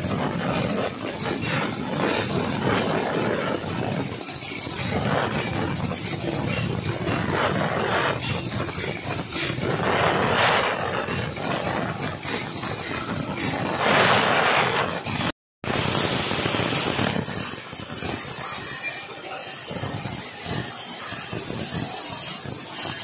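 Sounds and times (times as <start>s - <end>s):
plasma cutter hissing: 0.0s - 23.0s.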